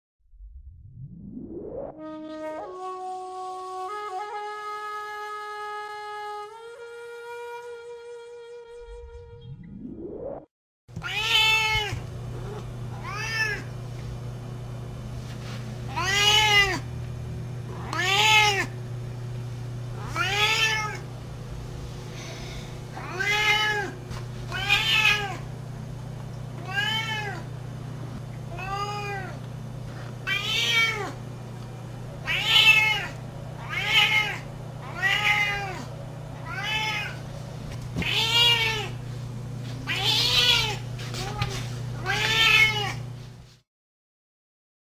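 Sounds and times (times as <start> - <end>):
low hum: 0.2 - 2.6, 11.8 - 40.0
cat meowing: 11.0 - 13.7, 15.9 - 16.8, 17.7 - 18.7, 20.0 - 21.0, 23.0 - 25.4, 26.6 - 27.4, 28.5 - 29.4, 30.2 - 31.2, 32.2 - 37.2, 38.0 - 39.0, 39.8 - 43.0.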